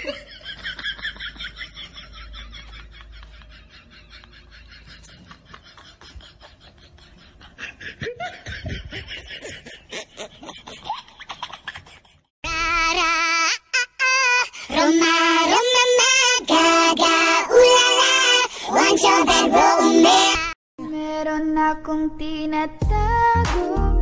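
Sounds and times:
person laughing: 0:00.0 - 0:12.3.

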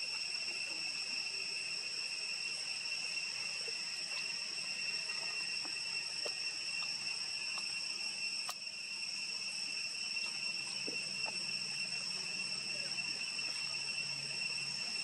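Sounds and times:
insects droning in chorus: 0:00.0 - 0:15.0
faint clicks: 0:08.4 - 0:08.6.

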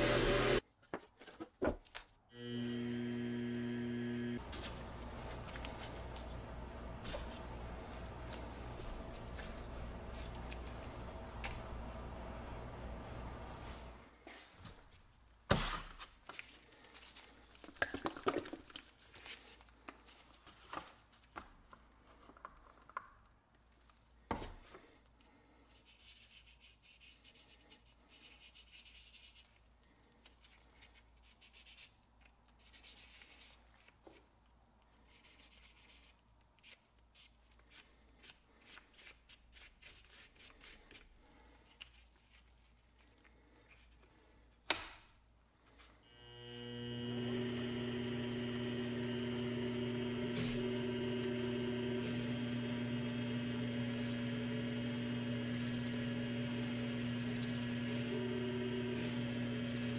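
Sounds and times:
gloved hands rubbing and rustling: 0:04.4 - 0:17.7, 0:18.8 - 0:22.8, 0:23.5 - 0:44.6.

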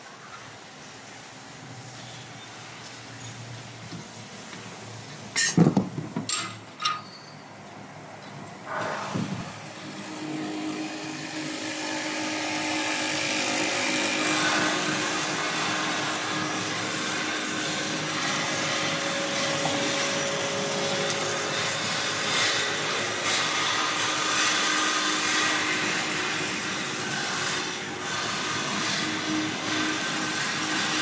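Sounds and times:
factory machinery droning: 0:06.3 - 0:31.0.

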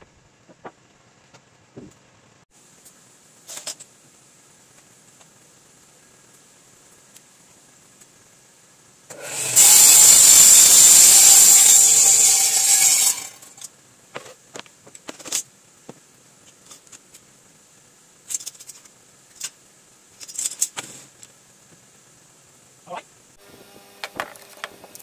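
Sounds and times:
table saw cutting wood: 0:09.1 - 0:13.6.

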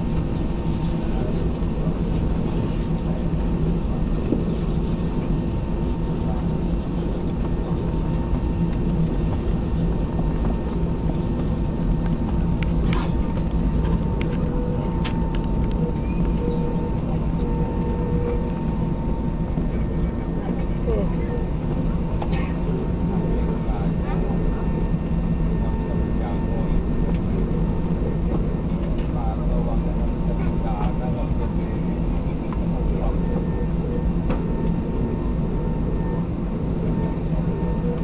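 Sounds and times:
jet engines humming in cabin: 0:00.0 - 0:38.0.

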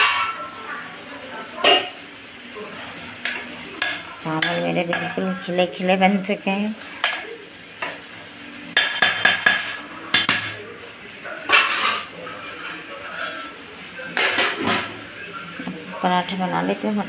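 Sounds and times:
metal ladle scraping a pot: 0:01.6 - 0:02.0, 0:11.5 - 0:13.6.

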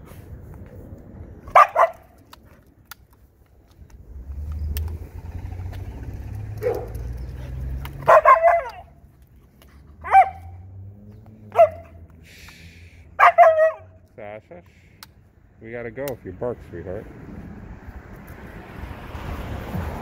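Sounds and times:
dogs barking and yipping: 0:01.4 - 0:02.4, 0:06.2 - 0:12.2, 0:13.1 - 0:14.0
passing car rumble: 0:03.6 - 0:14.1, 0:15.3 - 0:20.0.

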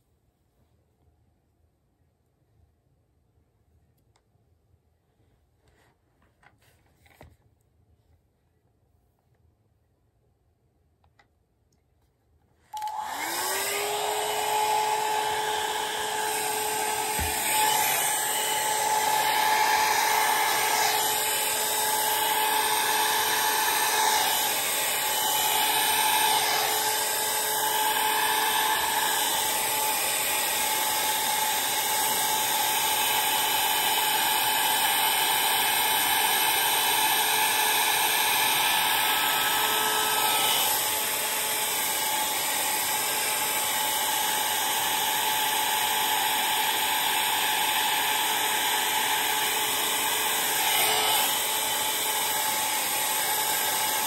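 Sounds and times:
hot air brush motor whine: 0:12.8 - 0:54.0.

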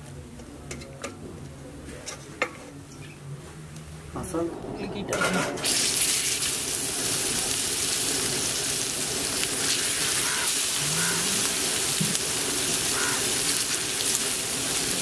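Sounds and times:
fish sizzling on a griddle: 0:05.6 - 0:15.0.

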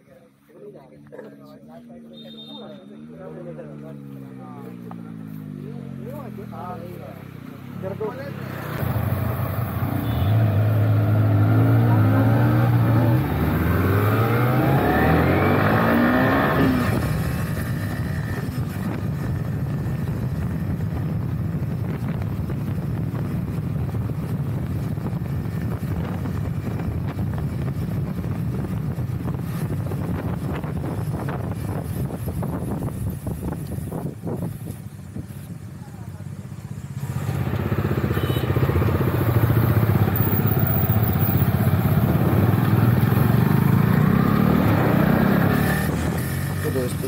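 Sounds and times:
motorcycle engine revving: 0:03.0 - 0:47.0
wind rushing while riding: 0:11.9 - 0:35.5, 0:38.6 - 0:46.6.

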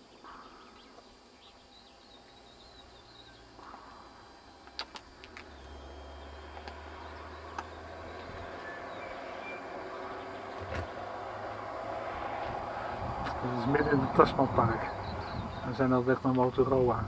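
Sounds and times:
road vehicle approaching: 0:01.2 - 0:17.0
sharp clicks: 0:04.6 - 0:05.8, 0:06.5 - 0:06.8, 0:07.5 - 0:07.8.

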